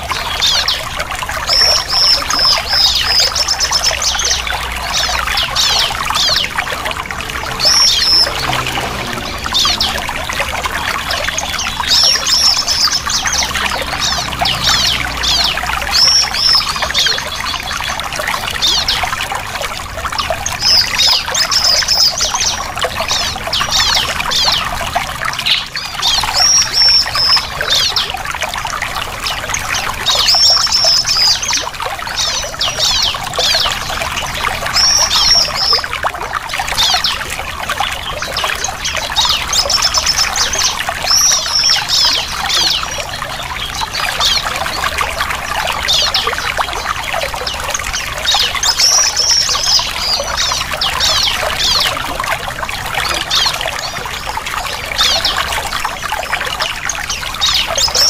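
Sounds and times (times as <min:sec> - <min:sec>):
bird chirping: 0:00.0 - 0:18.0, 0:37.9 - 0:52.0
water trickling: 0:00.0 - 0:58.0.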